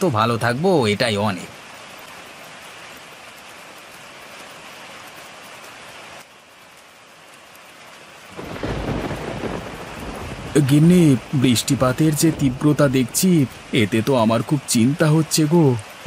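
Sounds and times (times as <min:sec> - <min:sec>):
heavy rain falling: 0:00.0 - 0:16.0
deep rumble of thunder: 0:08.4 - 0:13.8.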